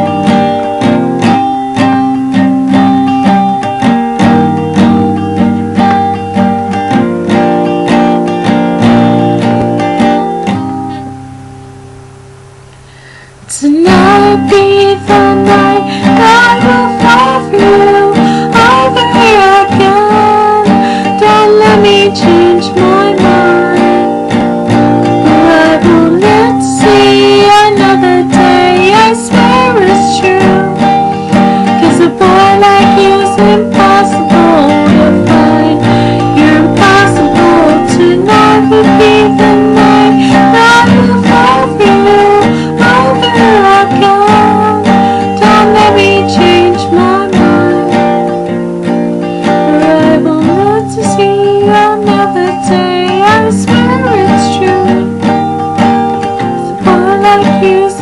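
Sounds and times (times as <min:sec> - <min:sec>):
acoustic guitar strummed: 0:00.0 - 0:58.0
woman singing: 0:13.5 - 0:24.4, 0:25.0 - 0:48.4, 0:49.4 - 0:58.0.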